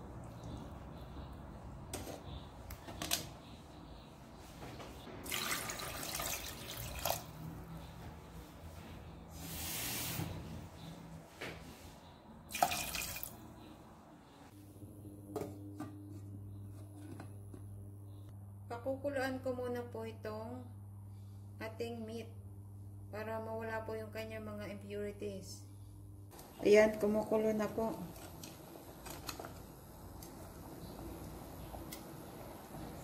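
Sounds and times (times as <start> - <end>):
water splashing into pot: 5.2 - 7.3, 12.5 - 13.4
induction cooktop humming: 12.4 - 33.0.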